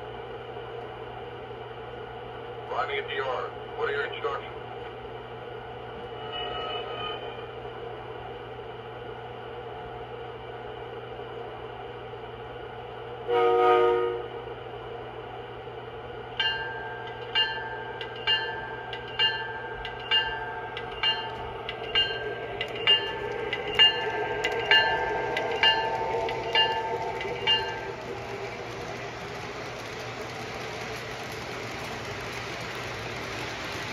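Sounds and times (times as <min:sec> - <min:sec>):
electric locomotive idling hum: 0:00.0 - 0:33.9
locomotive horn blast: 0:13.3 - 0:14.4
locomotive bell ringing: 0:16.4 - 0:28.8.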